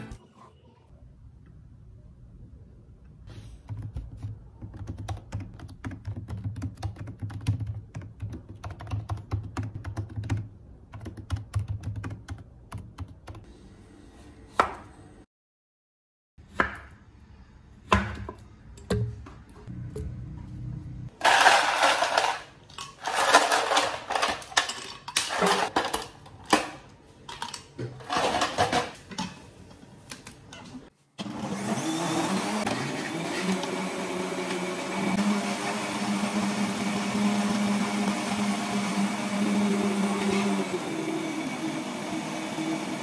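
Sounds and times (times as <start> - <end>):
blender chopping and running: 31.2 - 43.0.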